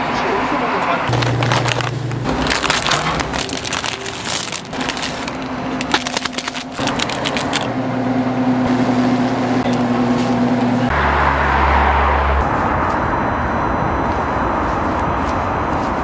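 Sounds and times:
machine humming: 1.0s - 11.3s
plastic packet crinkling: 1.1s - 7.7s.

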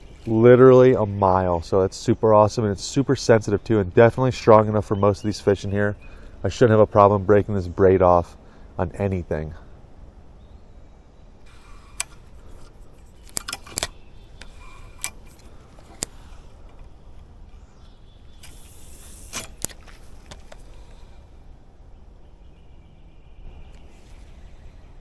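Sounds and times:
fishing line running off spool: 11.5s - 16.5s, 18.3s - 20.2s
fishing reel clicks: 18.4s - 19.8s.

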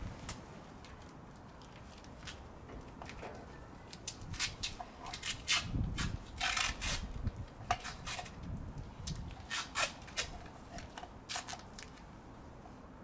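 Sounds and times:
tape ripping off a roll: 4.0s - 8.4s, 9.1s - 10.4s, 11.3s - 12.0s.

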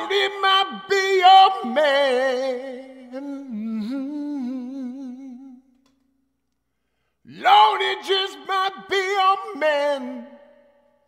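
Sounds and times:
man singing unaccompanied: 0.0s - 5.7s, 7.3s - 10.6s.

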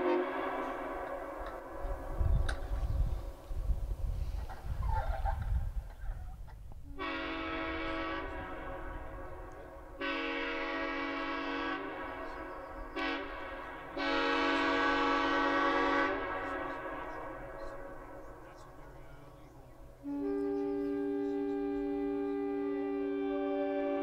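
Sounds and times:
locomotive air horn blasts: 0.0s - 3.1s, 6.8s - 18.9s, 20.0s - 24.0s.

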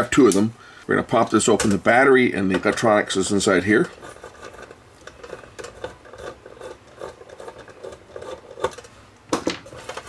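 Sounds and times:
screwdriver scraping rasp: 3.8s - 8.8s.

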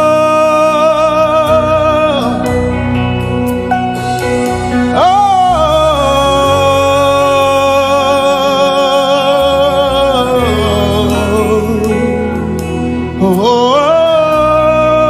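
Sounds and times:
instrumental accompaniment: 0.0s - 15.0s
man singing wavering note: 4.9s - 15.0s.

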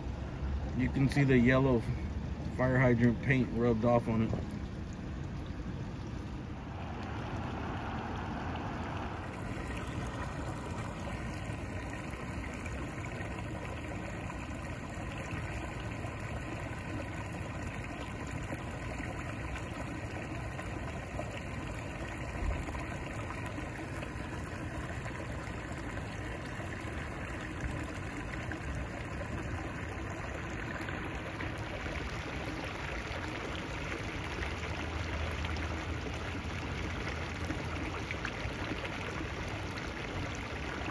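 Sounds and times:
road traffic hum: 0.0s - 17.4s
water flowing along gutter: 0.0s - 40.9s.

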